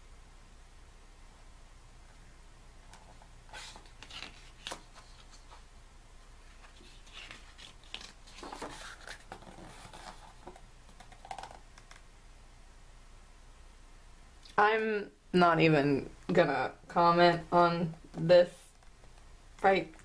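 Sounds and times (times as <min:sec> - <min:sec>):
paper pages rustling: 0:02.9 - 0:05.7, 0:06.4 - 0:12.0.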